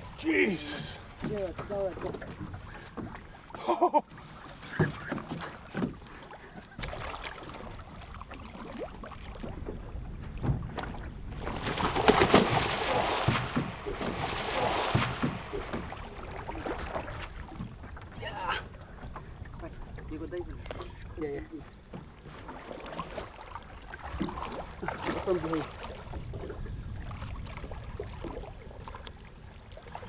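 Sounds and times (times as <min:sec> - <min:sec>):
knocks on canoe hull: 0:01.2 - 0:02.4, 0:04.7 - 0:06.0, 0:11.8 - 0:16.0
loud splashing water: 0:06.8 - 0:09.4, 0:11.3 - 0:17.6.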